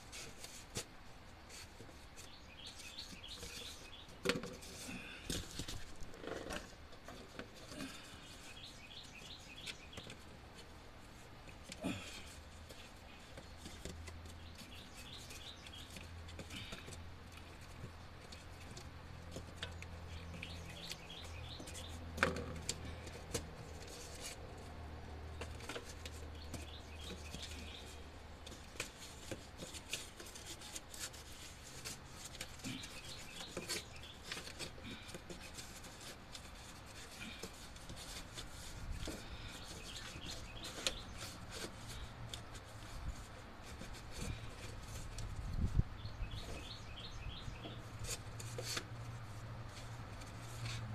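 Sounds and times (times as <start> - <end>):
hands handling cardboard and tools: 0.0 - 50.9
birds chirping: 1.8 - 10.3, 11.6 - 23.2, 25.3 - 48.8.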